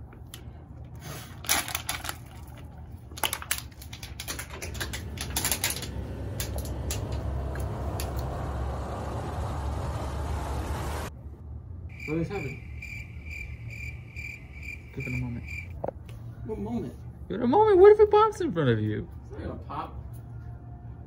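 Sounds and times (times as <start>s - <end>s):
plastic bottle crinkling and clicking: 1.4s - 5.9s
crickets chirring: 11.9s - 15.8s.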